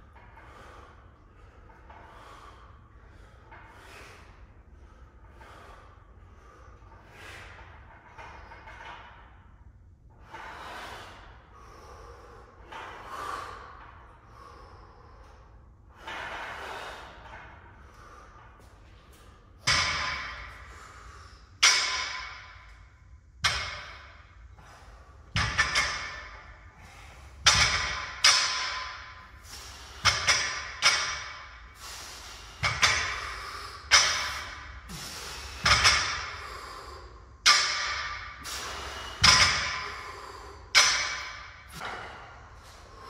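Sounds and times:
barbell clanking: 19.6 - 20.7, 21.6 - 22.8, 23.4 - 24.4, 25.3 - 31.7, 32.5 - 36.5, 37.4 - 42.3.

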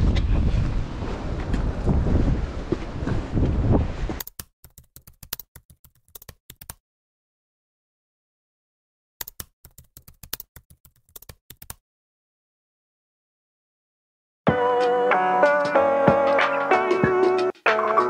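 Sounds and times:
wind buffeting microphone: 0.0 - 4.2
keyboard typing clicks: 4.2 - 6.8, 9.2 - 11.8.

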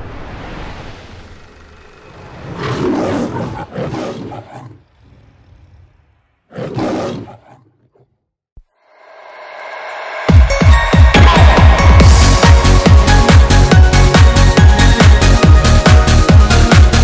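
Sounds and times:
lion roaring: 1.3 - 8.2.

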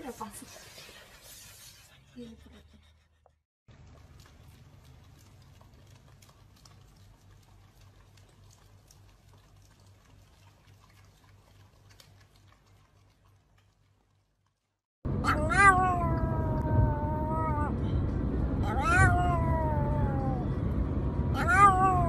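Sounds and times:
dogs licking ice cream: 3.7 - 14.7.

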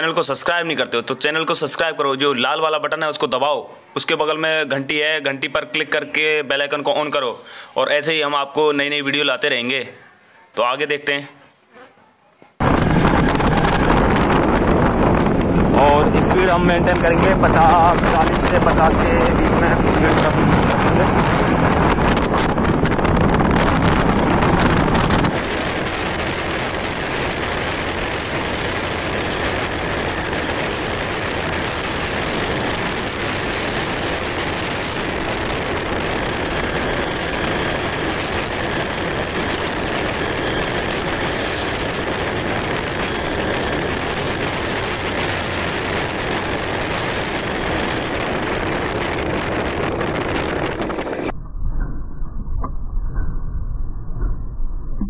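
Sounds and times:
wind rushing over microphone: 12.6 - 55.0.

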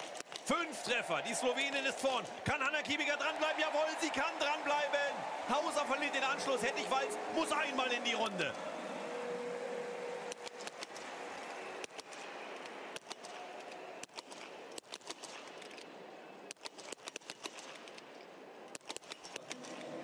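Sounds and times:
crowd noise: 0.0 - 20.0.

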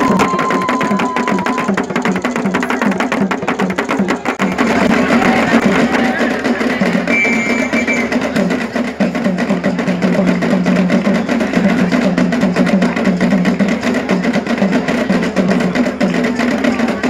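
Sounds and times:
drums beaten in fast rhythm: 0.0 - 17.0.

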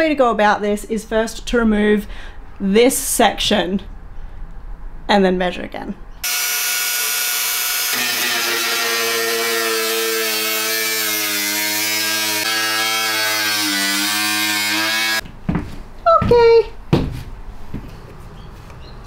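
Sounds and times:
angle grinder cutting metal: 6.2 - 15.2.

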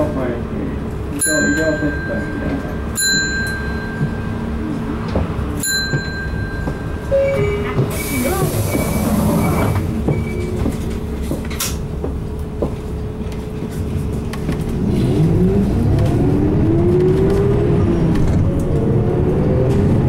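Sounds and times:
bus engine humming: 0.0 - 20.0.

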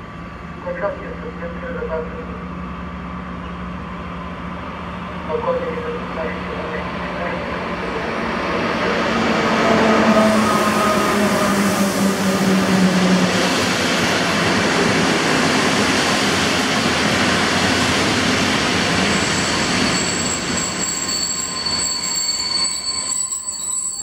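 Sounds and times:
train wheels rushing on rail: 2.3 - 24.0
high-pitched brake squealing: 19.1 - 24.0.

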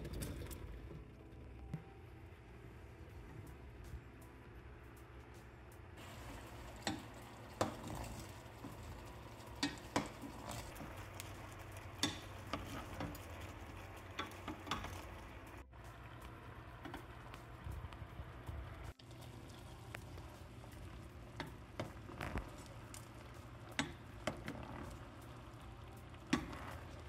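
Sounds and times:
hiss of heating oil: 6.0 - 27.0.

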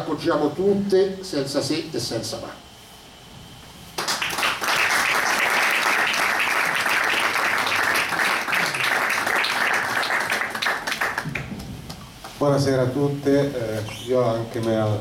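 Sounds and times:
audience applauding: 4.0 - 11.5.

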